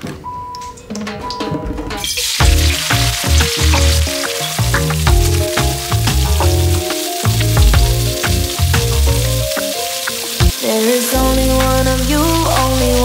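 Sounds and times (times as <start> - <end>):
background music: 0.6 - 13.0
vegetables sizzling and crackling: 2.0 - 13.0.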